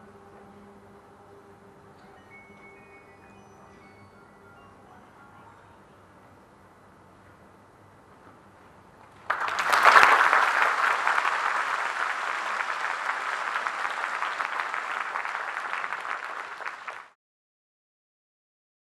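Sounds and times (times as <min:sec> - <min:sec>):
audience applauding: 0:09.2 - 0:17.2.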